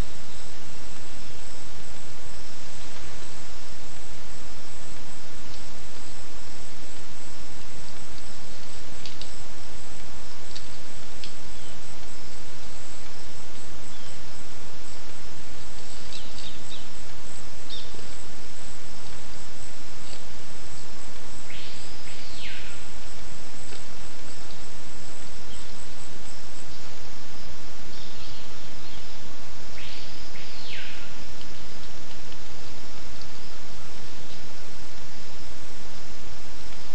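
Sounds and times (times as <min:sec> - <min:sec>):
forest birds chirping: 0:00.0 - 0:36.9
loud steady microphone hiss: 0:00.0 - 0:36.9.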